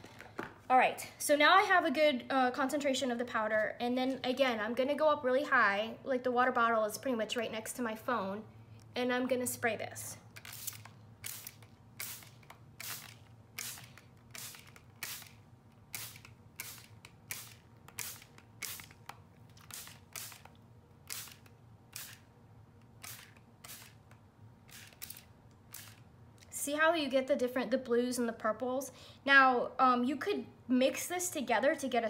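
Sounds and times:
spray bottle squirting: 10.3 - 22.3, 22.9 - 26.1.

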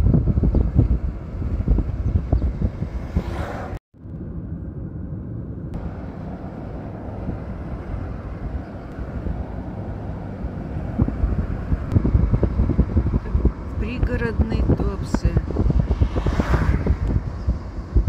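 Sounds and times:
car road and engine rumble: 0.0 - 18.0
wind buffeting microphone: 0.0 - 18.0.

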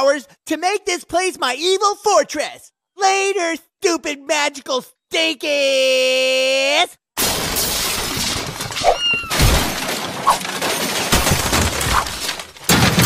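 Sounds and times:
glass shattering: 7.2 - 13.0
objects crashing and smashing: 7.2 - 13.0.

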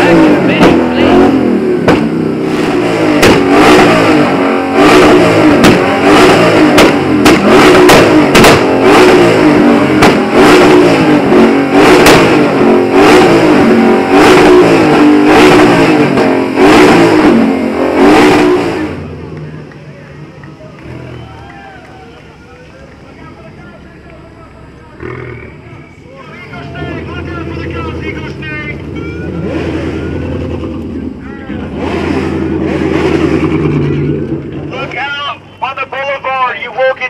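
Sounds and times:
car engines revving hard: 0.0 - 37.0
exhaust pops and cracks: 3.2 - 3.5, 5.6 - 5.9, 6.7 - 8.8, 9.9 - 10.3.

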